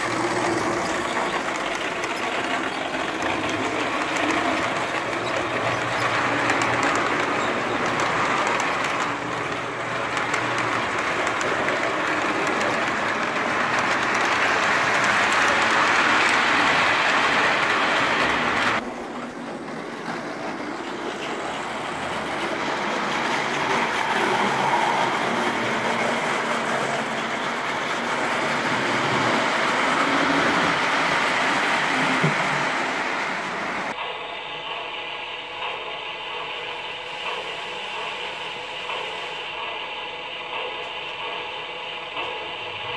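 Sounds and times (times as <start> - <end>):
model train wheels and motors whirring: 0.0 - 42.9.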